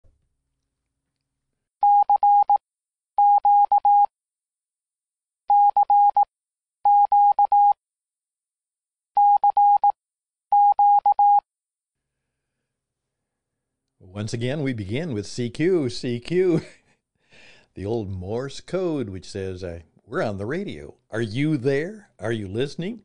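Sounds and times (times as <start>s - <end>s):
morse code beeps: 1.8s - 2.6s, 3.2s - 4.1s, 5.5s - 7.8s, 9.2s - 11.4s.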